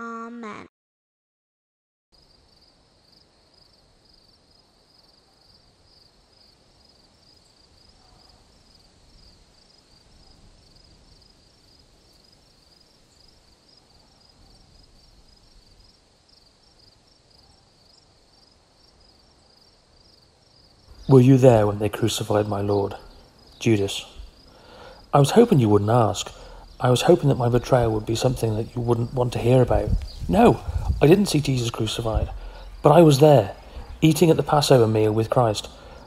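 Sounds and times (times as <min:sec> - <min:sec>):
crickets chirping: 0:02.2 - 0:36.0
low background rumble: 0:24.0 - 0:36.0.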